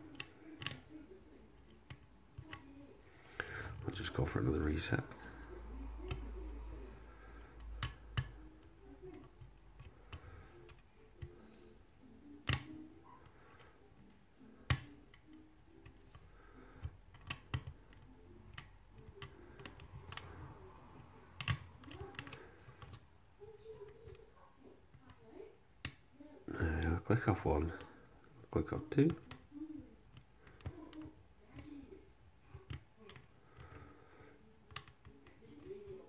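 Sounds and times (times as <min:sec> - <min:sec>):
metal lock pick clicking on pins: 0:14.7 - 0:20.4, 0:34.7 - 0:35.7.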